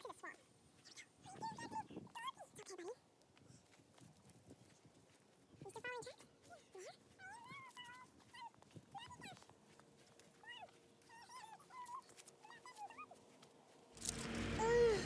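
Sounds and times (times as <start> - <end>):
dog whimpering: 10.4 - 13.2.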